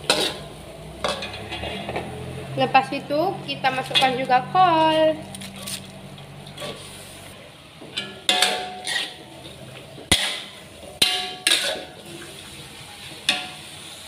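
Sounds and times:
metal spatula clanking on wok: 0.0s - 2.1s, 7.9s - 9.2s, 10.1s - 12.1s, 13.2s - 13.7s.

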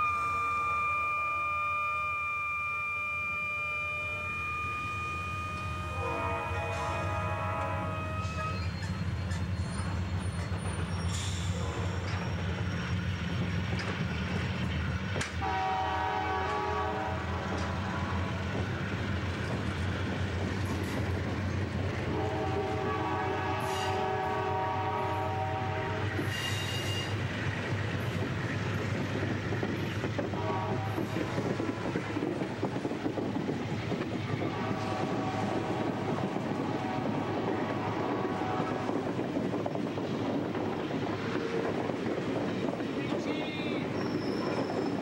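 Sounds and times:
train horn blasts: 0.0s - 8.7s, 15.4s - 18.4s, 22.0s - 27.1s, 30.3s - 32.2s, 34.4s - 39.1s
diesel locomotive engines rumbling: 0.0s - 45.0s
train wheel clatter: 6.7s - 15.6s, 16.4s - 22.7s.

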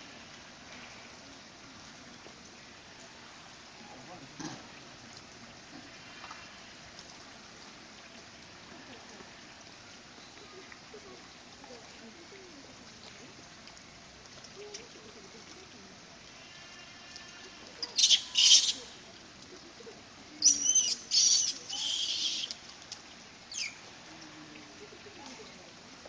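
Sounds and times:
shrill animal calls: 16.8s - 18.9s, 20.4s - 22.5s.

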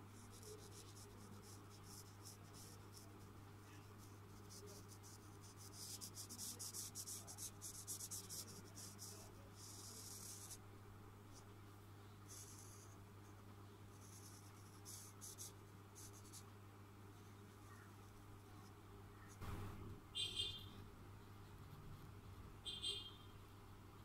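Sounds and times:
marker scratching on paper: 0.2s - 10.6s, 12.3s - 13.0s, 13.9s - 16.4s.

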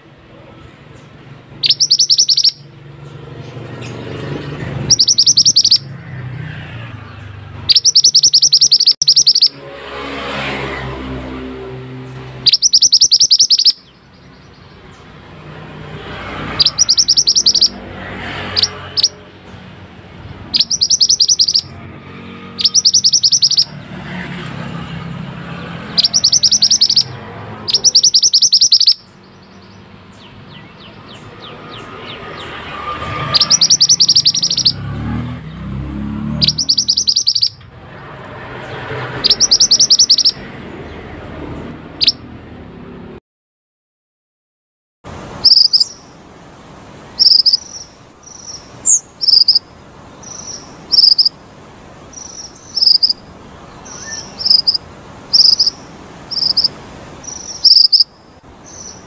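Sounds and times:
bird singing high trills: 1.0s - 2.8s, 4.8s - 9.7s, 11.6s - 15.1s, 16.4s - 17.8s, 18.4s - 19.2s, 20.4s - 23.9s, 25.6s - 37.7s, 38.5s - 41.0s, 42.0s - 42.2s, 45.4s - 46.2s, 47.1s - 51.4s, 52.1s - 59.0s.

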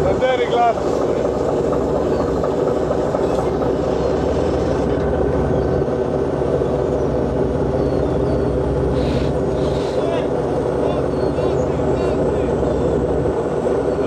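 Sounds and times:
diesel engines droning: 0.0s - 14.0s.

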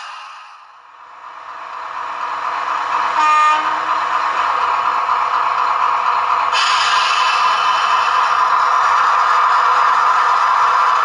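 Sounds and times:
diesel locomotive engine through small speaker: 0.0s - 11.0s
short horn blast: 3.2s - 3.9s.

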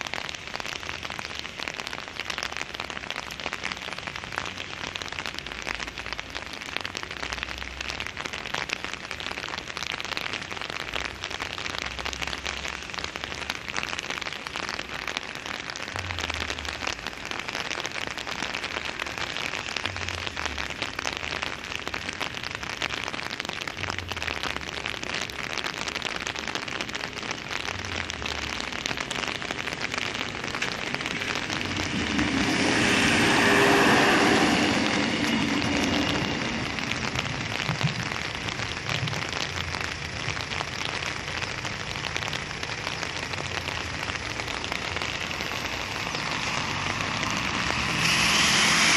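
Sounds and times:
rain hissing on pavement: 0.0s - 48.9s
diesel train passing: 30.0s - 38.8s, 46.0s - 48.9s.

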